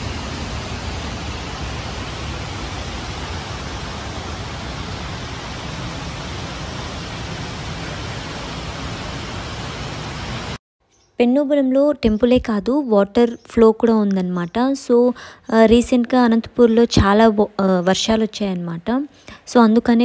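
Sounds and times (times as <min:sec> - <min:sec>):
rushing noise with low rumble: 0:00.0 - 0:10.6.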